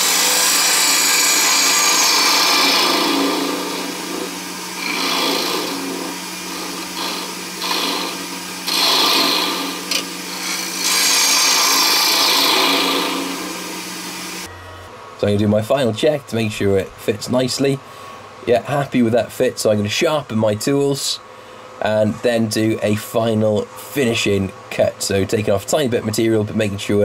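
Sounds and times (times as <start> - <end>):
gouge hissing through wood shavings: 0.0 - 14.4
lathe humming: 0.0 - 14.5.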